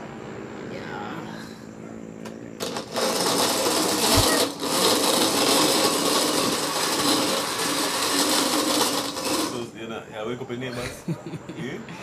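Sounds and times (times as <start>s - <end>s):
blender running: 2.6s - 9.8s.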